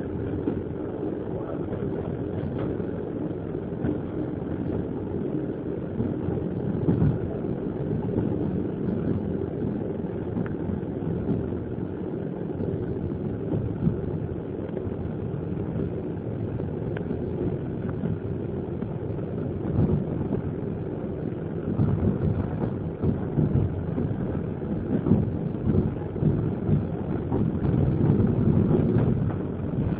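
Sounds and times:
train rumbling along track: 0:00.0 - 0:29.9.

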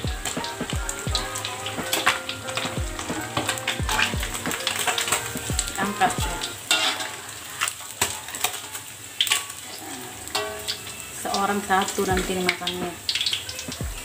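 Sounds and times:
fish deep-frying in oil: 0:00.0 - 0:14.0
metal skimmer clinking on wok: 0:03.4 - 0:07.2, 0:10.3 - 0:11.5.

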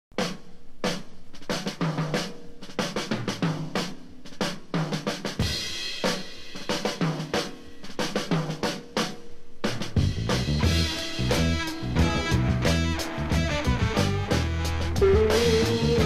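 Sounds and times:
drum kit beat: 0:00.1 - 0:16.0
repeating low riff: 0:10.1 - 0:16.0.

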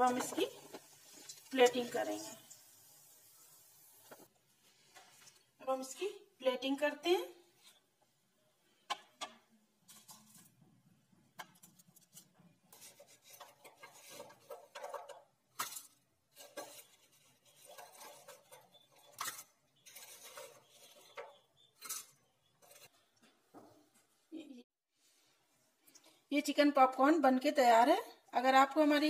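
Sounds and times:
aluminium foil rustling: 0:11.6 - 0:23.0.

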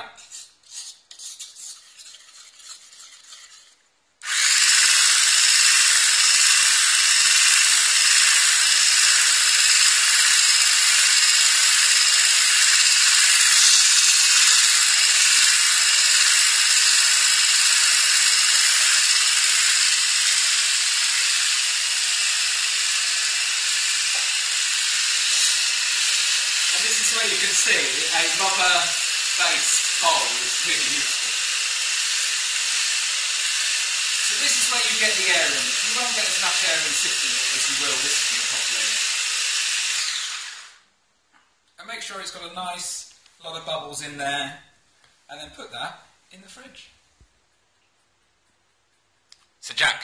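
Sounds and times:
electric whisk whirring: 0:04.2 - 0:40.8.

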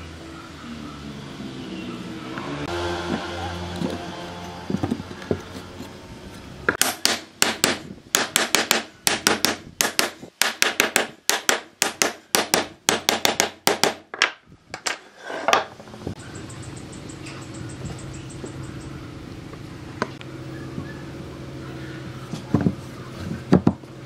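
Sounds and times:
wooden frame scraping: 0:14.9 - 0:16.0.

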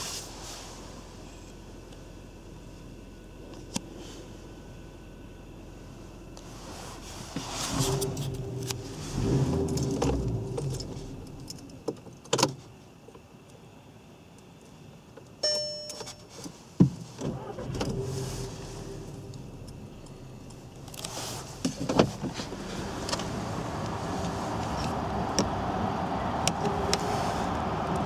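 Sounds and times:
dashboard warning chime: 0:15.4 - 0:16.3.

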